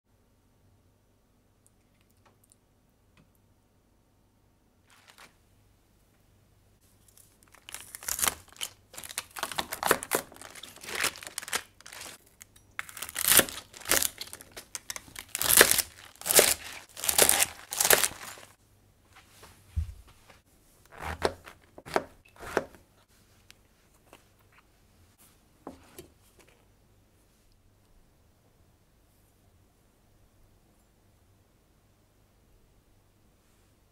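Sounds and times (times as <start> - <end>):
mushrooms pulled apart by hand: 7.0 - 18.6
knife slicing crunchy stalks: 12.8 - 18.5, 21.0 - 22.8.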